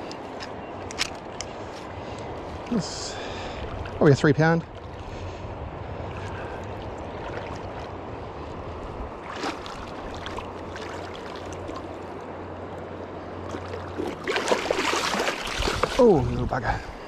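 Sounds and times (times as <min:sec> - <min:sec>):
flowing river water: 0:00.0 - 0:17.0
splash: 0:06.1 - 0:07.9, 0:09.2 - 0:12.0, 0:13.5 - 0:16.2.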